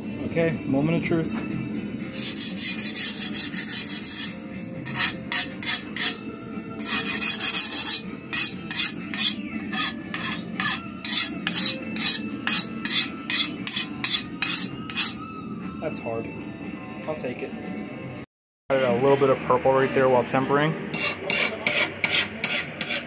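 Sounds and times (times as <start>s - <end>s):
file rasping on steel blade: 2.1s - 15.2s, 20.9s - 23.0s.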